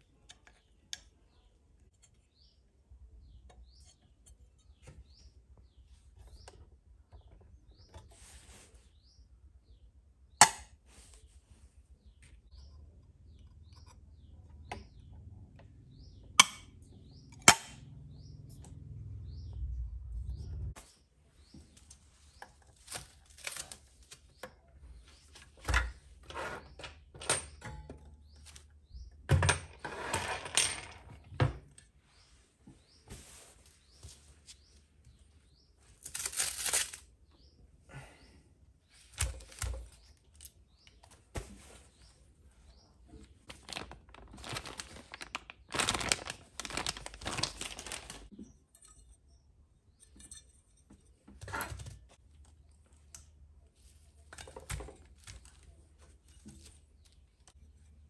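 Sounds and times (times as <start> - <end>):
rustling: 43.4 - 48.3.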